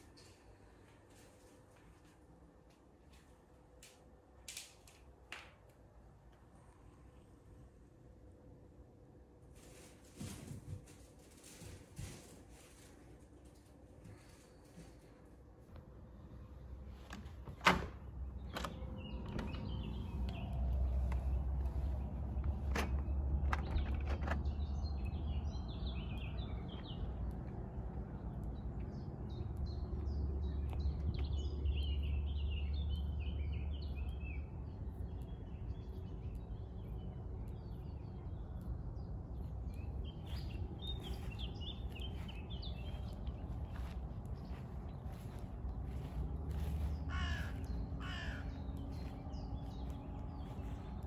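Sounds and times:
birds chirping: 12.8s - 51.0s
low rumble: 14.1s - 51.0s
door handle and latch clicking: 17.0s - 19.7s, 22.6s - 24.4s.

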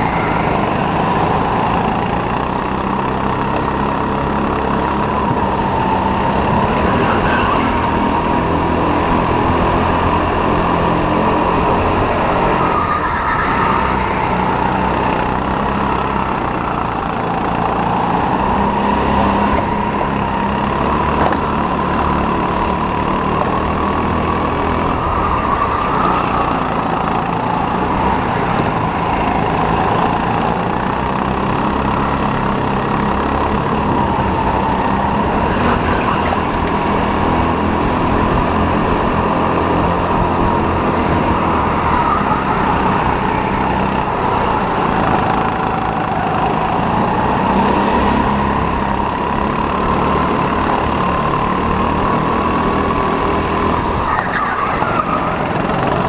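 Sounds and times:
racing kart engine running hard: 0.0s - 56.0s.

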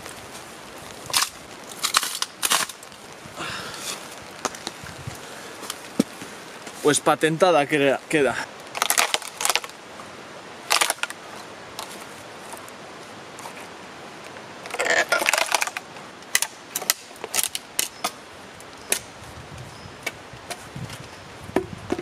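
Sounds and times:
wood splitting cracks: 0.9s - 3.0s, 8.7s - 9.8s, 10.7s - 11.2s, 14.7s - 18.2s.

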